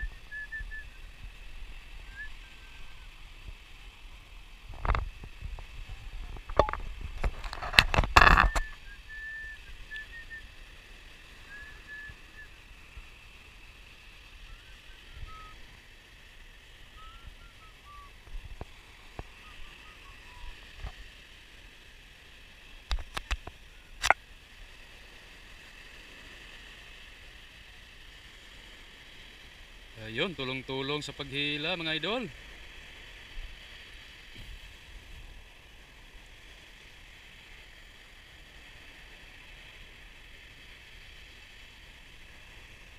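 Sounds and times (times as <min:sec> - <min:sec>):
faint bird chirps: 0:00.0 - 0:01.2, 0:02.0 - 0:03.2, 0:08.4 - 0:12.7, 0:14.3 - 0:15.6, 0:16.9 - 0:18.2, 0:19.2 - 0:20.6
surf and wind hiss: 0:00.0 - 0:42.9
wind buffeting microphone: 0:04.5 - 0:10.4.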